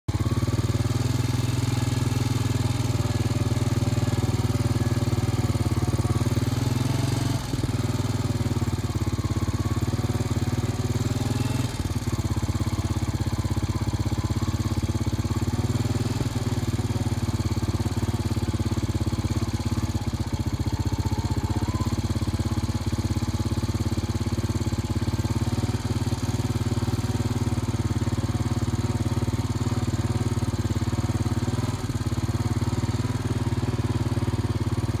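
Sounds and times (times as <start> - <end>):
small engine running: 0.1 - 35.0.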